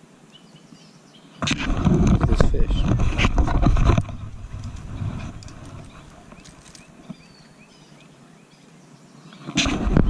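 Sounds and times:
rustling and knocking near microphone: 1.4 - 7.3.

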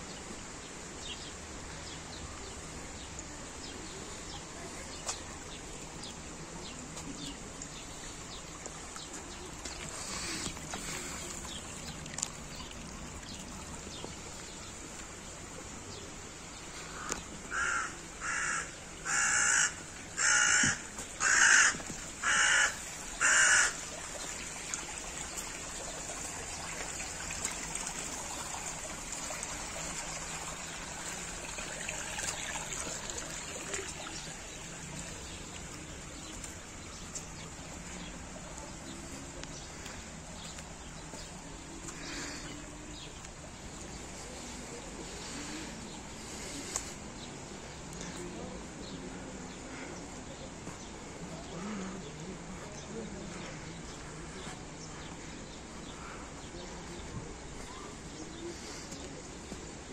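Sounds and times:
stream trickling: 0.0 - 59.9
crow cawing: 17.0 - 23.8.

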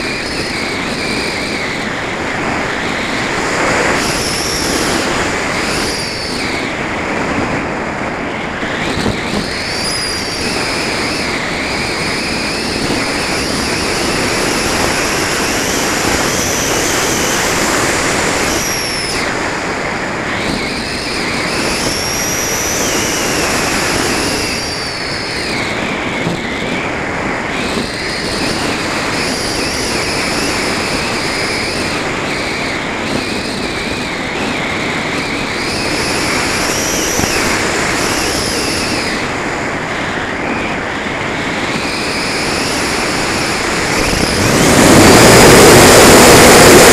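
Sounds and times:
high whine varying in pitch: 0.0 - 26.1, 41.8 - 46.9
wind rushing: 0.0 - 33.1, 33.7 - 46.9.

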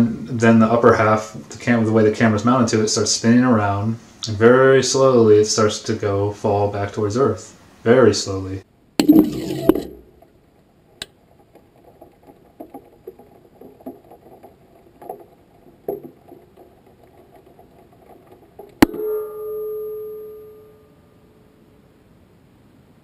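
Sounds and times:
light knocks and rattles: 10.1 - 19.0
sharp ringing knock: 18.8 - 21.0.

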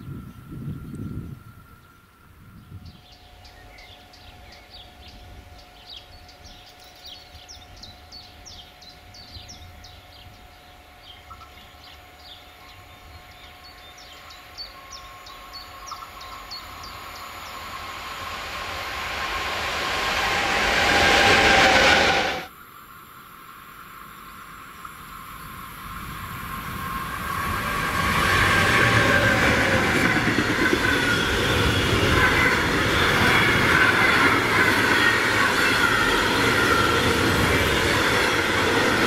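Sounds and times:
freight train wheel and rail noise: 0.0 - 39.0
birds singing: 0.1 - 18.3.

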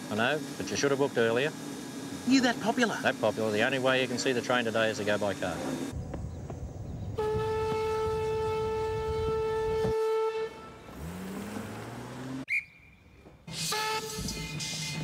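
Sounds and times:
steam locomotive whistle: 7.2 - 11.1, 13.5 - 15.0
car engine accelerating: 10.7 - 12.5.

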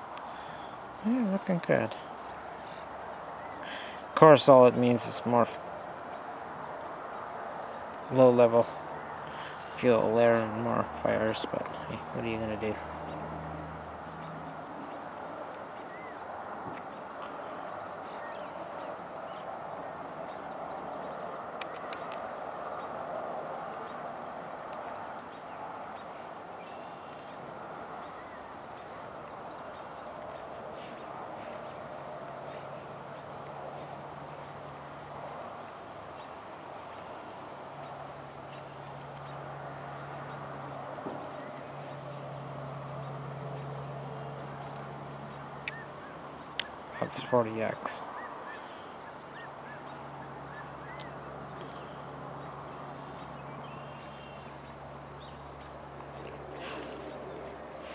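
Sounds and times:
crickets chirping: 0.0 - 57.9.

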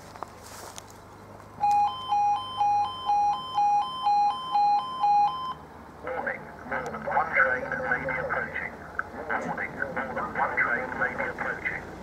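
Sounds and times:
level crossing alarm warbling: 1.6 - 5.6.

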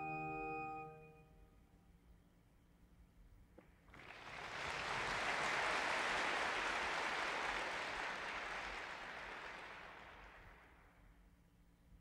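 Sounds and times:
audience applauding: 3.9 - 10.8.

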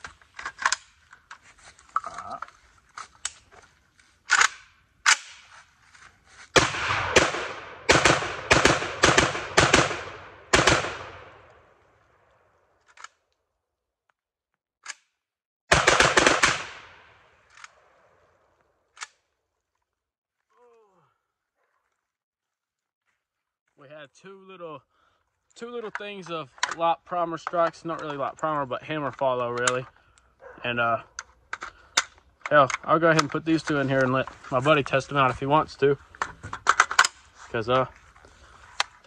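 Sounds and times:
pistol gunshots: 6.6 - 11.5, 15.7 - 17.1.

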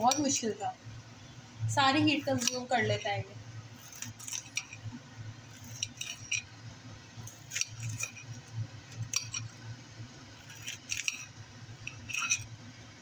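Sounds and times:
blade clicking on plate: 0.0 - 0.4, 2.3 - 3.0, 3.8 - 4.9, 5.6 - 6.5, 7.2 - 9.5, 10.4 - 12.5
range hood humming: 0.0 - 13.0
knife slicing cabbage: 3.8 - 4.8, 7.3 - 8.4, 10.4 - 11.3.

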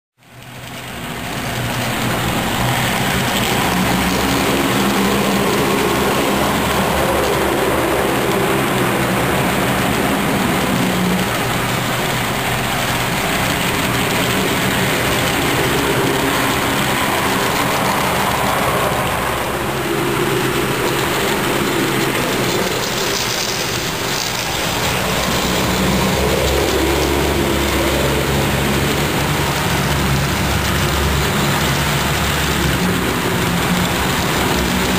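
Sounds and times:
model train rumbling and rattling: 0.2 - 34.9.

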